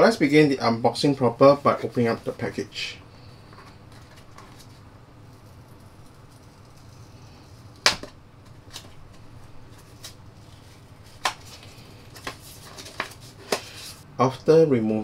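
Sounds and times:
paper packaging clicks and rustles: 7.6 - 14.0.

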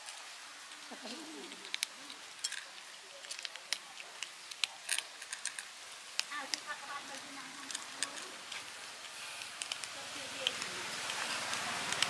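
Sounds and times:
kittens crunching dry kibble: 0.0 - 12.0.

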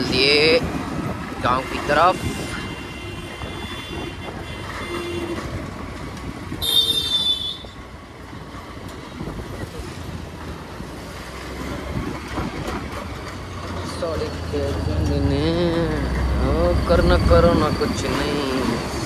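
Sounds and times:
scooter engine and road rush: 0.0 - 19.0
high-pitched vehicle horn: 1.8 - 5.6, 6.6 - 7.8.

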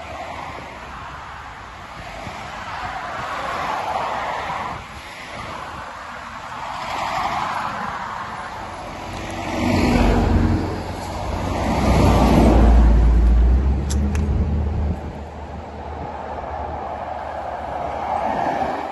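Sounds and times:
highway traffic passing: 0.0 - 18.9
deep rumble of vehicle: 8.0 - 18.9.

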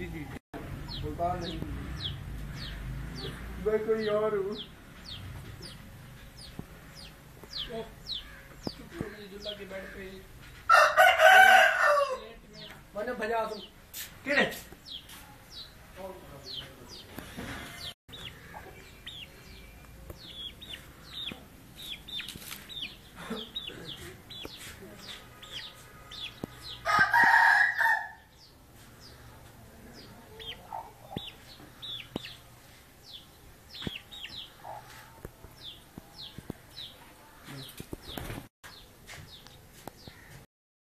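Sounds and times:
small birds chirping: 0.0 - 10.7, 12.2 - 27.2, 28.2 - 40.5
rooster crowing: 10.7 - 12.4, 26.8 - 28.3.

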